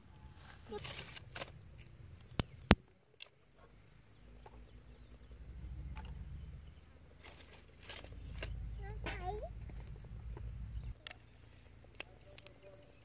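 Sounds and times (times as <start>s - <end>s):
dry twigs ticking: 0.4s - 3.6s, 4.2s - 12.7s
sharp clicks: 1.0s - 3.4s.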